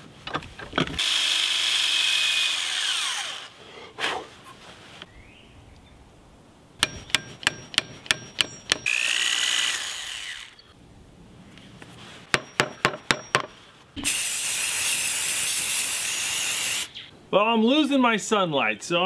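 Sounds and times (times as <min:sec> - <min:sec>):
spray paint hiss: 0:14.0 - 0:17.0.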